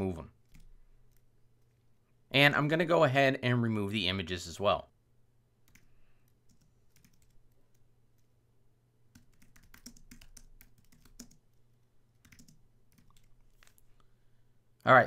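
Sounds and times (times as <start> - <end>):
faint steady hum: 0.0 - 15.0
typing on a computer keyboard: 0.4 - 1.8, 5.6 - 8.3, 9.1 - 13.8.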